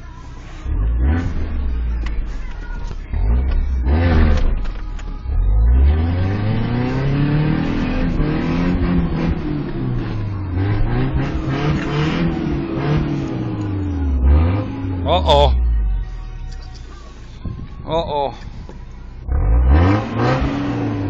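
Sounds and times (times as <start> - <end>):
truck engine revving hard: 0.7 - 1.7, 3.2 - 4.5, 5.5 - 15.6, 19.3 - 21.0.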